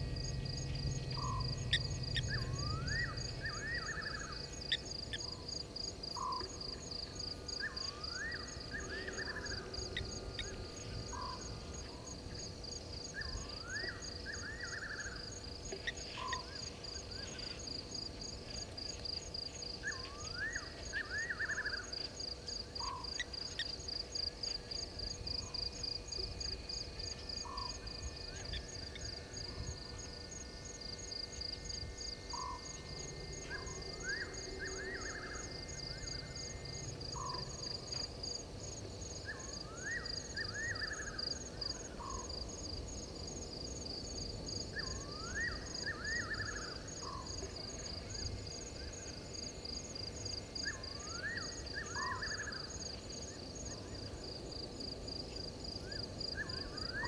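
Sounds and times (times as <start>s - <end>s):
frogs calling: 0.0s - 5.4s, 31.9s - 38.0s
insects trilling: 0.0s - 57.0s.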